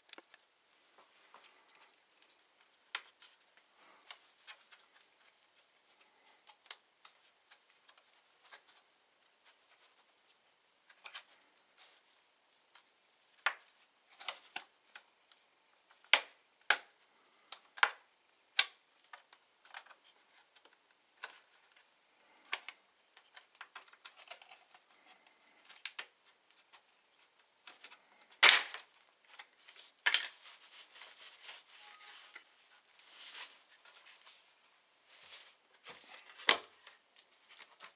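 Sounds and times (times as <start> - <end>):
plastic clips popping: 27.6 - 30.4
plastic cover scraping: 27.9 - 34.5.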